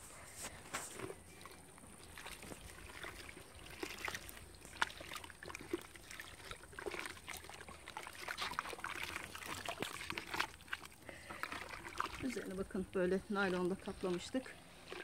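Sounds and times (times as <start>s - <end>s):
scrapes in plastic bucket: 0.0s - 1.4s
mortar mixing wet sounds: 0.0s - 15.0s.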